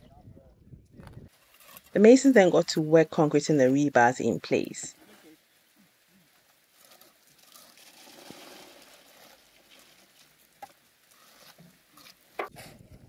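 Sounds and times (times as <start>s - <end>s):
wet concrete scraping and slapping: 6.8s - 12.6s.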